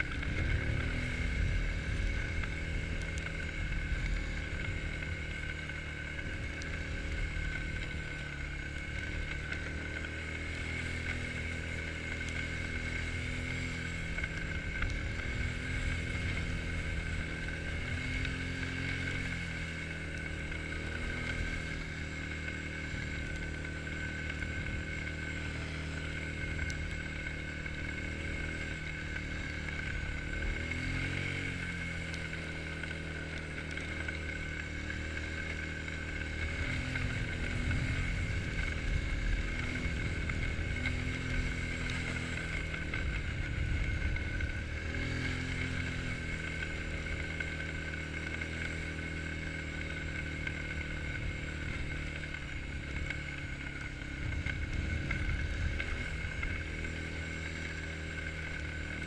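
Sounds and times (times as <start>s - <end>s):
quad bike engine running: 0.0s - 59.0s
steady high whine: 0.0s - 59.0s.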